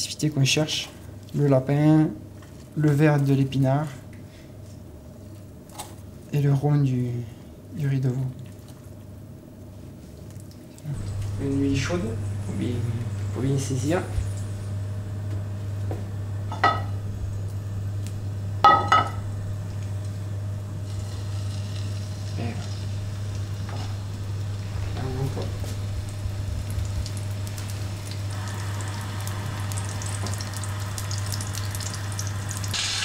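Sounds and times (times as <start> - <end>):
steady low hum: 8.8 - 33.0
meat sizzling in frying pan: 16.4 - 33.0.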